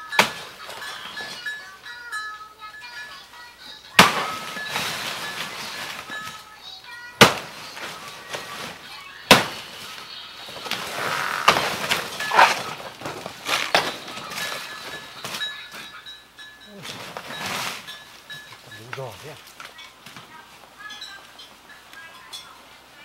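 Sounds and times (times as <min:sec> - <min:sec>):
rustling leaves: 0:00.0 - 0:23.0
banana plant cracking and snapping: 0:10.7 - 0:14.0.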